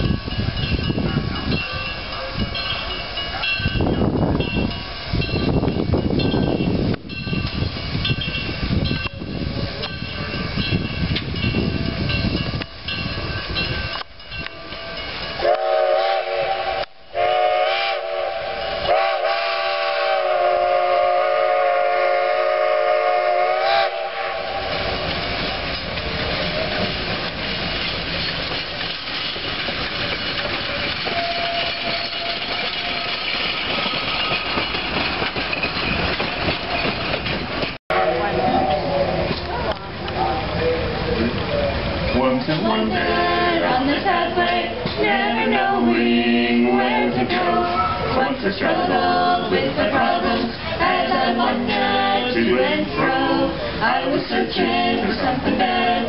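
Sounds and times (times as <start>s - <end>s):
coaches rolling on rails: 0.0s - 56.0s
steam locomotive working: 0.0s - 56.0s
steam whistle blasts: 15.4s - 25.1s.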